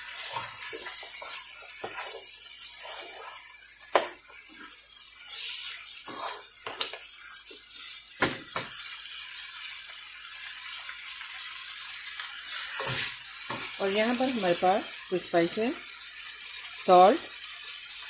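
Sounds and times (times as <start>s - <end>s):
food sizzling in a frying pan: 0.0s - 18.0s
spoon knocking against a pan: 3.9s - 4.2s.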